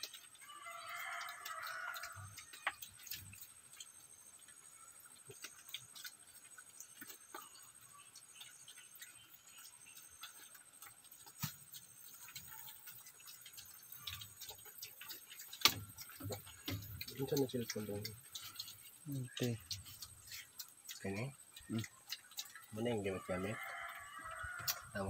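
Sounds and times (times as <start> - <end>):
small ticks and clicks: 0.0 - 25.0.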